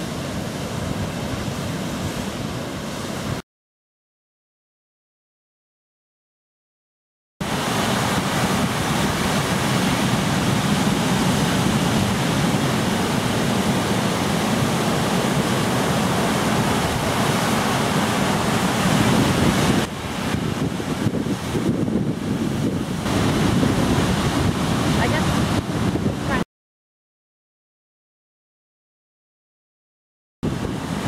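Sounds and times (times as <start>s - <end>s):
ocean surf breaking: 0.0s - 3.4s, 7.4s - 26.4s, 30.4s - 31.0s
wind buffeting microphone: 7.6s - 26.4s, 30.4s - 31.0s.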